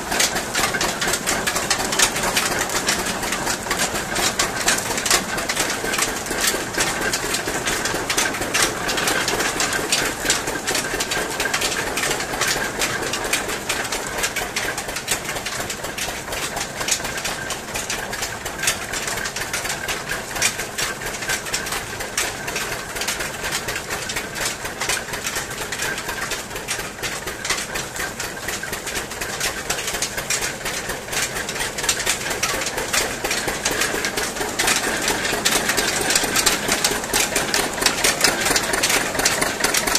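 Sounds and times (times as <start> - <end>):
gears and rollers clattering: 0.0 - 39.9.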